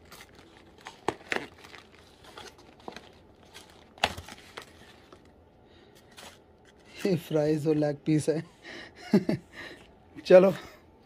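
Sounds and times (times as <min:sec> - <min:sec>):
paper bag crinkling: 0:00.0 - 0:05.4
plastic bag rustling: 0:00.0 - 0:05.4.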